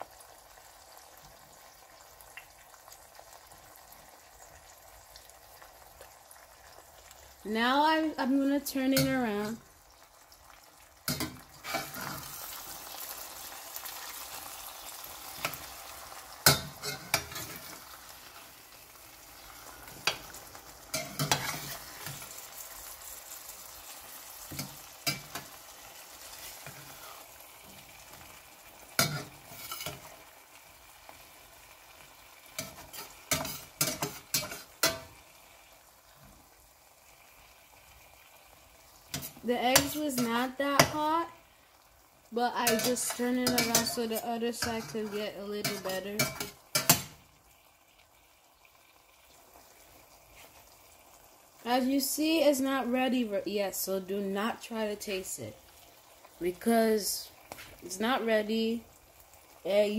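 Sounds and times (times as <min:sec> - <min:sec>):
eggs sizzling in a pan: 0:00.0 - 0:59.9
spatula scraping a pan: 0:11.1 - 0:12.8, 0:15.2 - 0:18.6, 0:19.5 - 0:22.6, 0:26.2 - 0:27.4, 0:29.0 - 0:30.3, 0:32.6 - 0:35.2, 0:39.1 - 0:41.0, 0:42.6 - 0:47.2.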